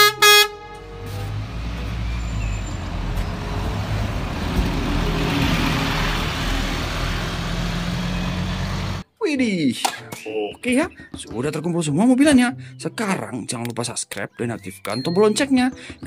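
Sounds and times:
bus engine humming: 0:00.0 - 0:09.0.

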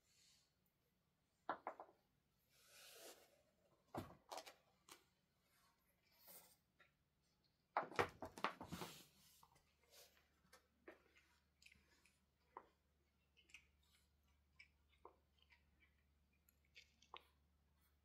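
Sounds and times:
soft chewing clicks: 0:10.4 - 0:18.0
cat crunching fruit: 0:10.6 - 0:18.0.

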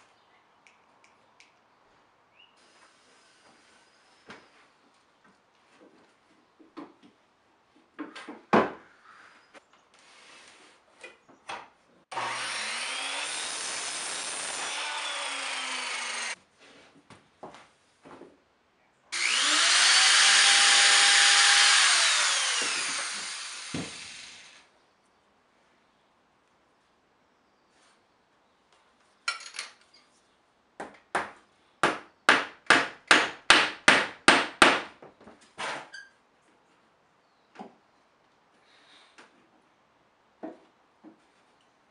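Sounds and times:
miter saw cutting wood: 0:12.1 - 0:16.4, 0:19.2 - 0:24.7
hammer hitting nail into wood: 0:30.8 - 0:34.9.

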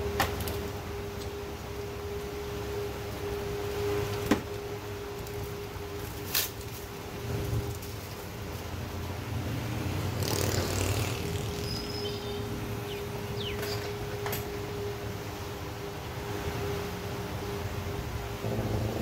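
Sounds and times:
workshop hum and low rumble: 0:00.0 - 0:19.0
rustle of parts being handled: 0:05.0 - 0:08.8.

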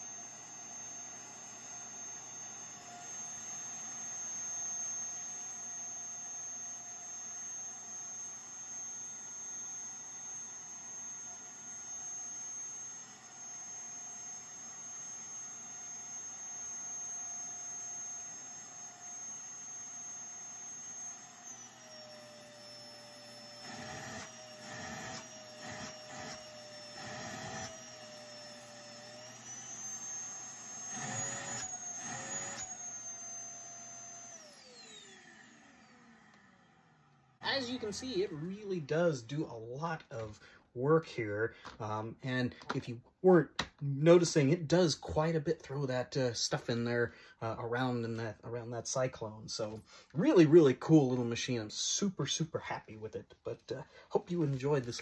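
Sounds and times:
vacuum cleaner motor whine: 0:00.0 - 0:40.5
vacuum hose rushing noise: 0:37.4 - 0:40.5.

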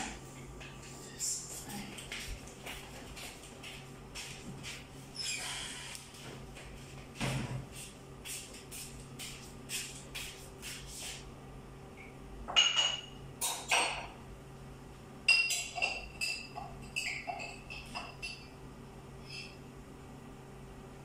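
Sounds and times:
faint steady hum: 0:00.0 - 0:21.0
dishes and utensils clinking: 0:12.5 - 0:14.2, 0:15.3 - 0:18.6.

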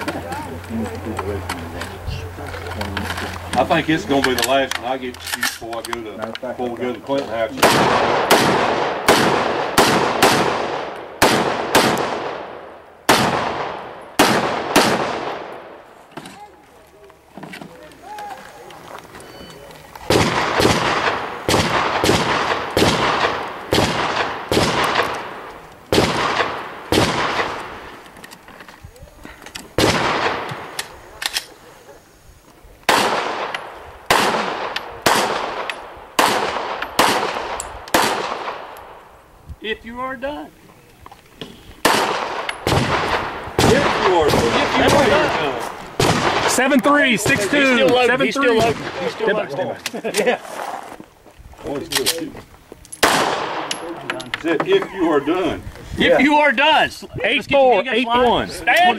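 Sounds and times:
rifle shots: 0:07.5 - 0:15.8, 0:20.1 - 0:28.0, 0:29.8 - 0:31.5, 0:32.9 - 0:39.0, 0:41.8 - 0:49.2, 0:53.0 - 0:53.9
gunshots with echo: 0:07.6 - 0:15.8, 0:20.1 - 0:27.8, 0:32.9 - 0:38.7, 0:41.8 - 0:46.6.

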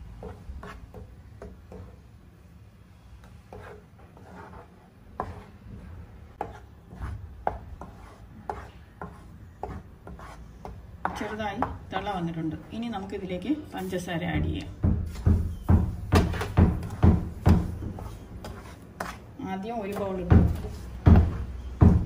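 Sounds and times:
wooden spatula scraping a pan: 0:16.2 - 0:19.3.

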